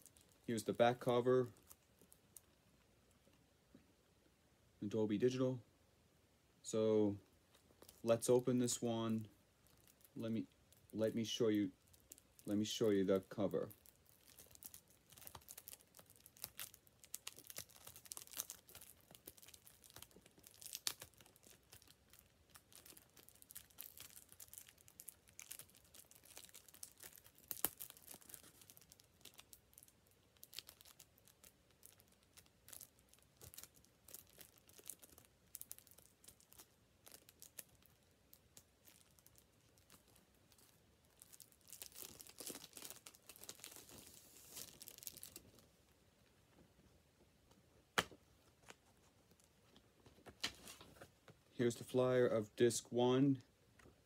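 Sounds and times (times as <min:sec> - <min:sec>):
cellophane crinkling and tearing: 0:00.0 - 0:02.6, 0:07.5 - 0:45.9
cellophane snapping: 0:13.7 - 0:45.6.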